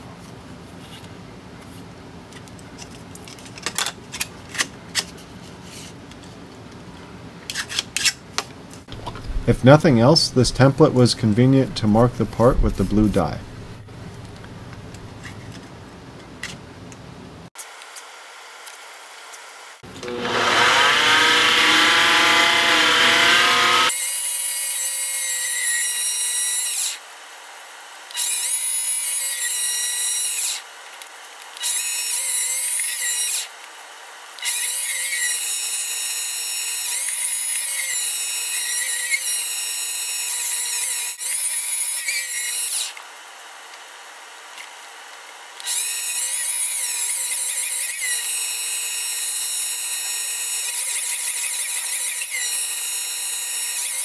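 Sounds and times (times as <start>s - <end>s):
lathe motor whining: 19.8s - 23.9s
loud rough machine sound: 19.8s - 23.9s
cutting tool hissing through metal: 19.8s - 27.0s, 28.2s - 30.6s, 34.4s - 43.0s, 45.6s - 54.0s.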